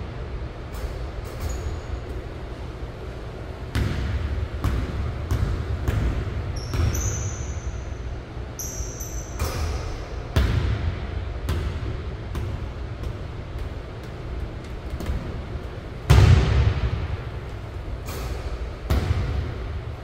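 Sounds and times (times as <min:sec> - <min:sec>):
sneaker squeaks on floor: 0:06.6 - 0:07.9, 0:08.6 - 0:09.8.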